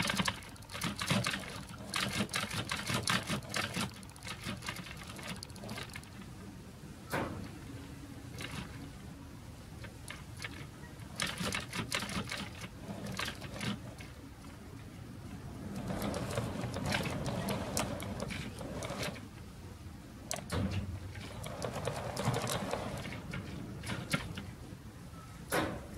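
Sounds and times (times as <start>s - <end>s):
metallic clicks of wheels on rails: 0.0s - 6.3s, 9.8s - 14.2s, 15.6s - 19.4s, 20.3s - 24.6s
model train rolling rumble: 0.0s - 6.3s, 15.4s - 19.4s, 20.3s - 24.6s.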